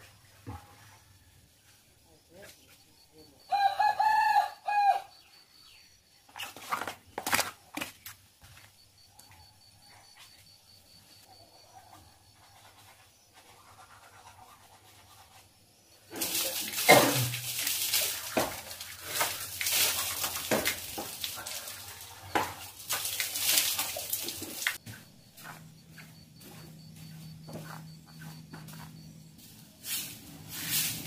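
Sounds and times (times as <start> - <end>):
water splashing on tiled floor: 16.1 - 24.8.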